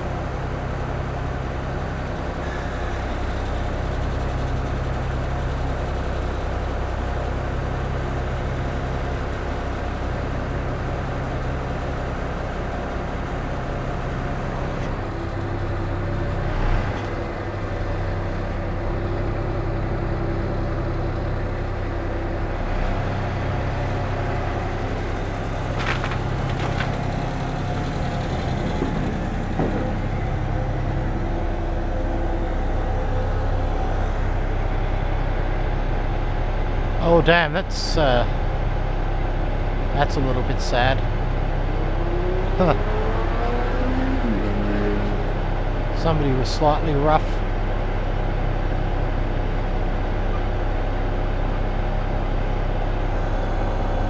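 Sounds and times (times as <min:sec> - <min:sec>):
diesel engine running: 0:00.0 - 0:54.0
hydraulic hum: 0:00.0 - 0:54.0.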